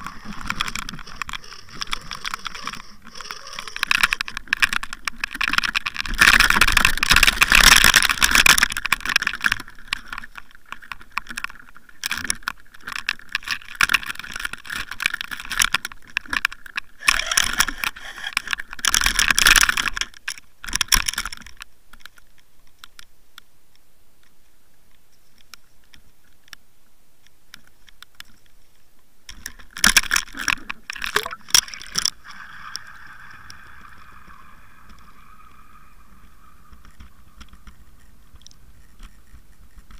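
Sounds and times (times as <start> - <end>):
faint steady whine: 21.4 - 39.9.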